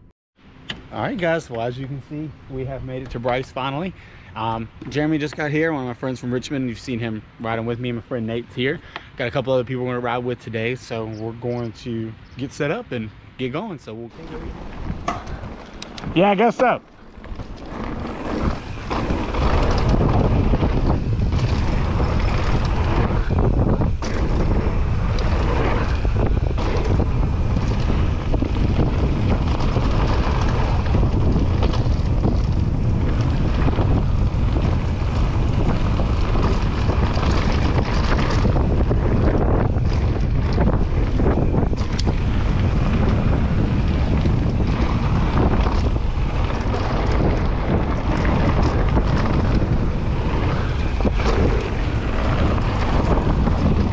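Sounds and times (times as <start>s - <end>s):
wind rushing over microphone: 0.0s - 53.9s
tyres rumbling on dirt: 0.7s - 53.9s
bike knocking over bumps: 17.0s - 53.9s.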